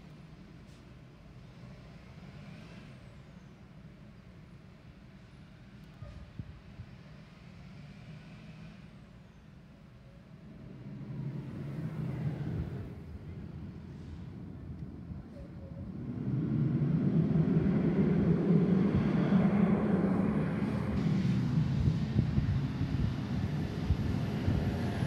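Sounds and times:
bus engine running: 10.4 - 25.0.

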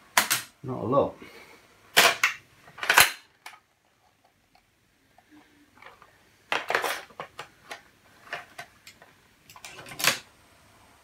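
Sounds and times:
plastic cartridge clattering: 5.8 - 10.2.

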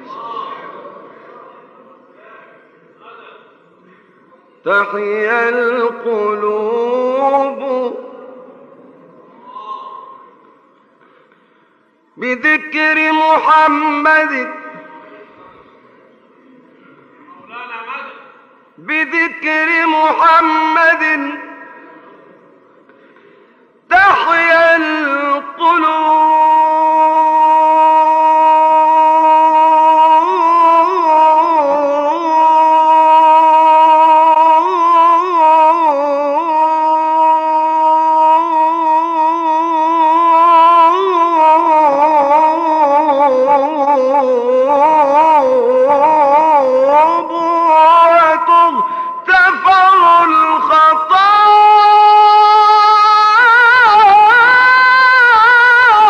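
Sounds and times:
man singing religious chant: 4.6 - 8.7, 12.2 - 15.7, 18.2 - 22.2, 23.8 - 56.0.

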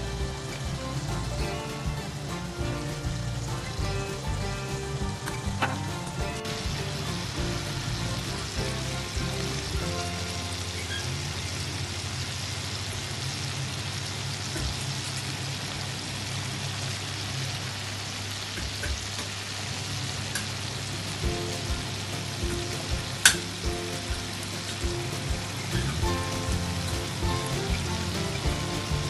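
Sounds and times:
background music: 0.0 - 11.9, 21.2 - 29.0
steaks sizzling in butter: 0.0 - 15.5.

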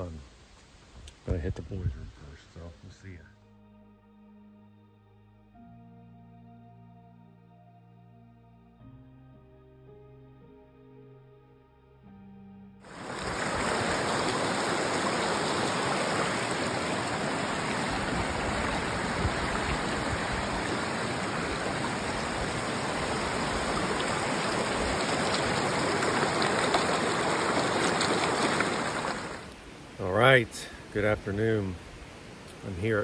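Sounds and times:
river rapids rushing over rocks: 12.9 - 29.5.

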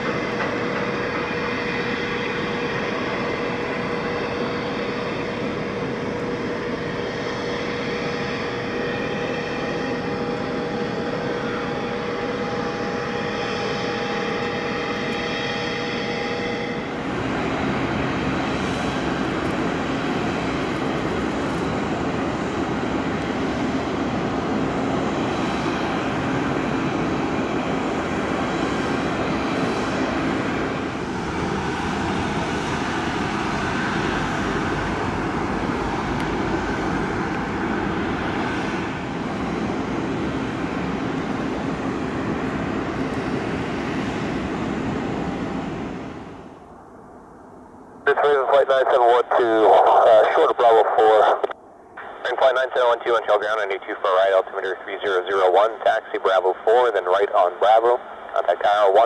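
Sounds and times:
jet engine rumble: 0.0 - 59.0
jet turbine whine: 0.0 - 59.0.

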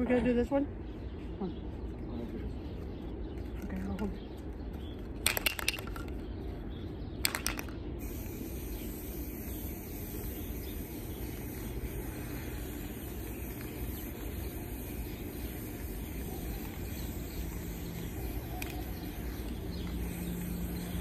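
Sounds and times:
spray can clicks: 7.2 - 8.3, 18.5 - 19.1
hiss of aerosol spray: 8.0 - 21.0.

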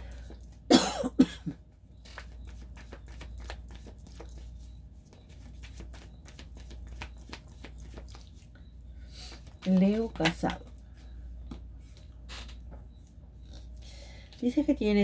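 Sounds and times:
low steady hum: 0.0 - 15.0
cards being shuffled: 2.0 - 8.5.

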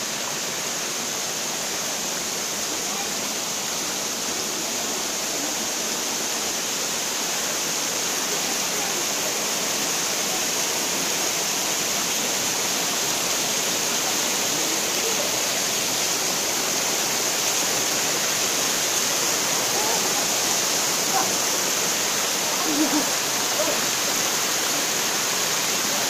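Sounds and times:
stream water rushing over rocks: 0.0 - 26.0
faint distant voices: 19.0 - 26.0.

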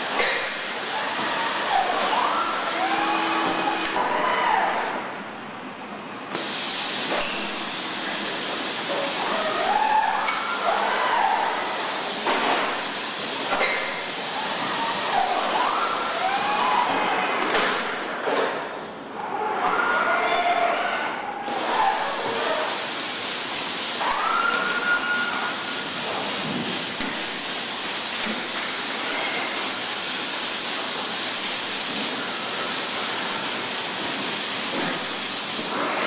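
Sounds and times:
steady machine hiss: 0.0 - 4.0, 6.4 - 16.7, 21.4 - 35.8
robot servo drives whining: 1.0 - 4.0.

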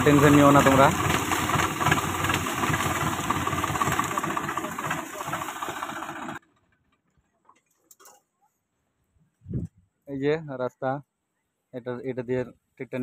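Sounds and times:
tractor diesel engine running: 0.0 - 6.4.

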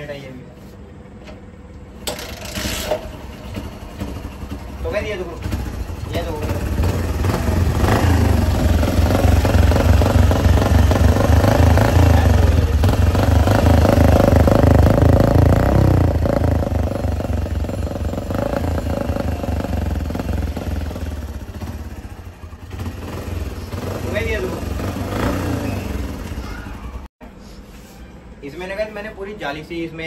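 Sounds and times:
motorcycle engine running muffled: 2.2 - 27.1.

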